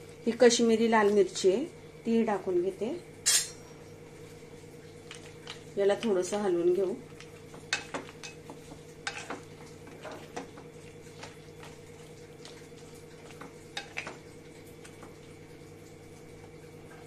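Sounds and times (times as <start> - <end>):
steady low hum: 0.0 - 17.0
spatula scraping pan: 7.7 - 10.5.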